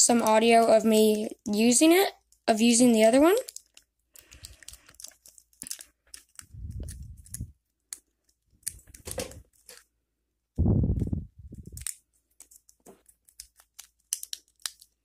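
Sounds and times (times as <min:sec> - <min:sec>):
small plastic clicks and scrapes: 0:03.4 - 0:09.9, 0:11.6 - 0:15.0
low rubbing rumble: 0:10.6 - 0:11.8.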